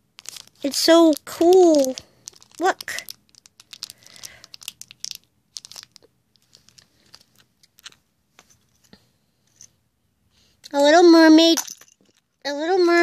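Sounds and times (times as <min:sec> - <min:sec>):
plastic wrapper crinkling: 0:00.0 - 0:08.0.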